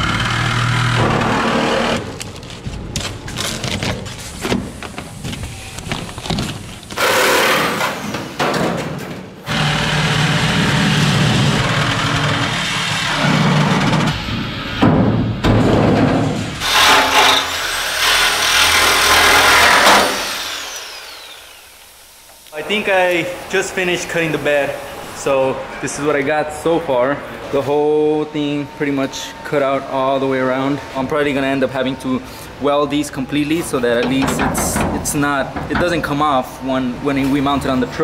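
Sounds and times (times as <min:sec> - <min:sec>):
reciprocating saw cutting steel: 0:16.6 - 0:25.1.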